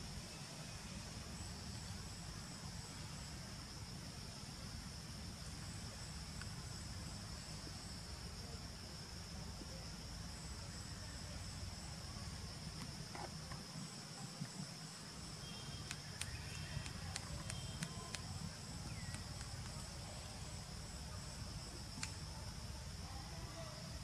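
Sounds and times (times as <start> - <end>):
sharp clicks: 15.8 - 19.8.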